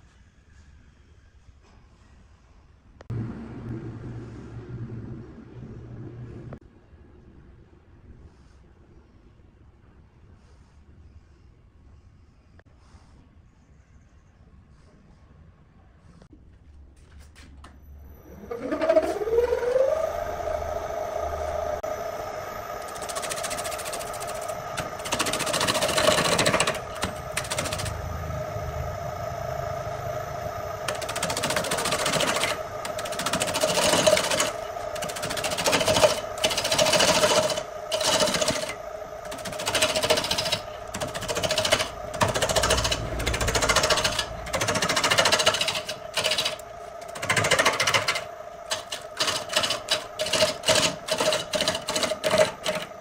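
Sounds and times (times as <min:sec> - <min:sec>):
wood lathe humming: 0:18.2 - 0:53.0
tool scraping spinning log: 0:18.3 - 0:53.0.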